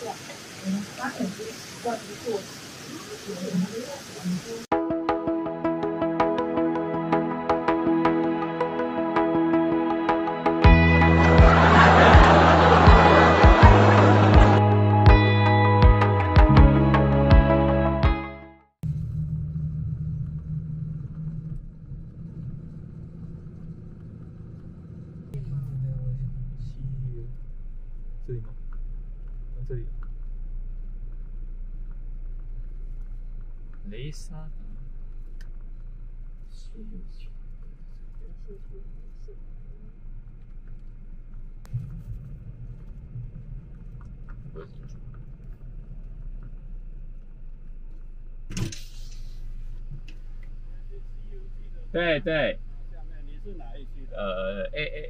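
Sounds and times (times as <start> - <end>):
car engine and road noise: 18.8 - 54.9.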